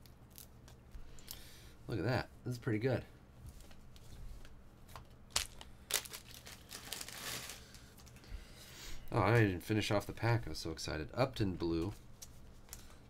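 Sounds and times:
plastic sleeves crinkling: 0:03.5 - 0:08.2.

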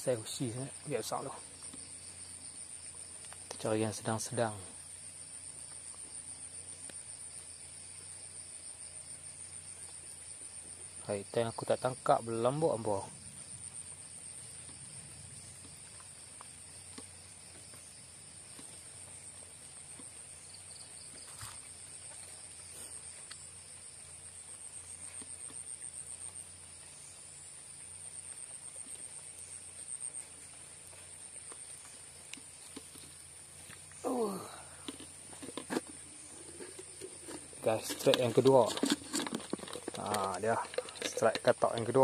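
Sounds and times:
crickets trilling: 0:00.0 - 0:42.0
faint ticks: 0:23.2 - 0:23.5.

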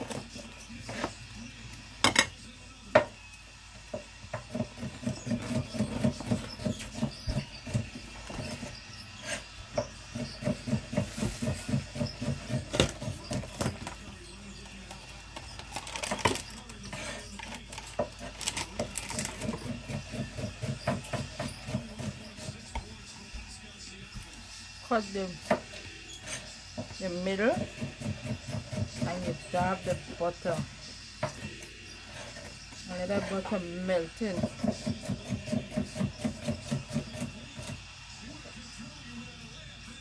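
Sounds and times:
knife sawing through bread: 0:04.5 - 0:13.7, 0:16.8 - 0:17.4, 0:18.2 - 0:22.8, 0:26.1 - 0:30.8, 0:31.4 - 0:37.8.

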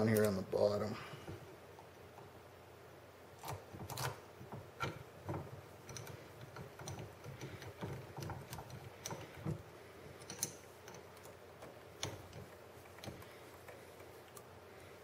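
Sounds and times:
hex key metal clicks: 0:10.2 - 0:14.5.

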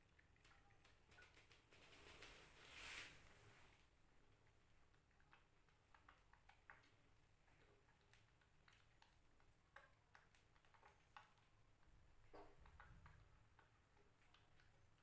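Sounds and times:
kitten suckling wet clicks: 0:04.1 - 0:15.0.

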